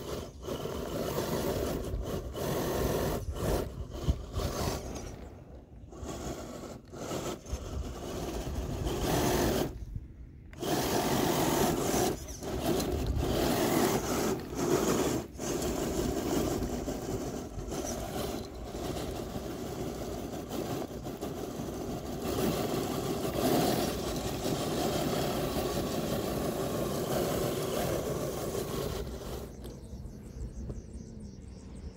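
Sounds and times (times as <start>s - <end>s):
tyres scrabbling on loose dirt: 0.0s - 9.9s, 10.5s - 30.8s
rc car motor whirring: 0.0s - 31.9s.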